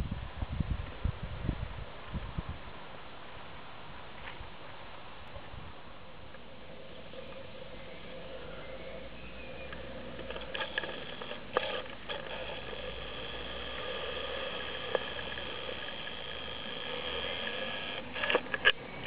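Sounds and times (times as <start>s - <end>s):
toy train motor whining: 9.7s - 18.8s
sharp clicks: 9.7s - 19.0s.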